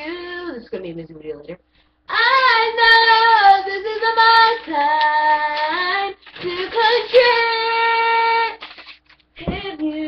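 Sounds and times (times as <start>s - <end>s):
girl singing: 0.0s - 0.8s, 2.1s - 8.6s, 9.4s - 10.0s.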